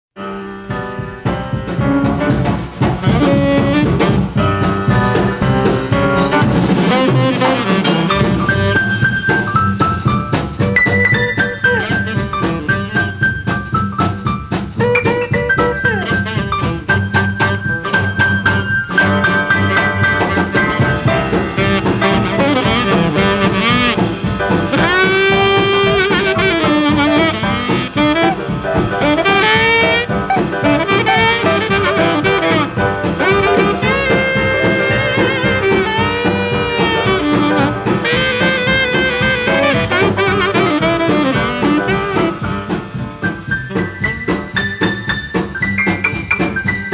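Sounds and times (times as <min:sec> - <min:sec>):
instrumental jazz music: 0:00.2 - 0:46.9.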